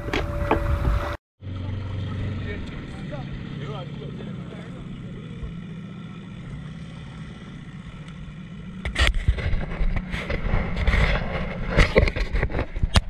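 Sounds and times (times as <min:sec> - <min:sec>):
wind and water spray hitting boat: 0:00.0 - 0:01.2
small outboard motor running: 0:00.0 - 0:12.8.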